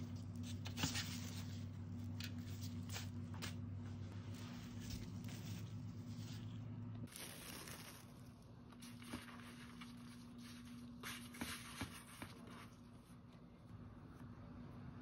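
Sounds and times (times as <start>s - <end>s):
low steady hum: 0.0s - 15.0s
plastic wrap rustling: 4.3s - 13.0s
hands gathering crumbly topping: 7.1s - 12.4s.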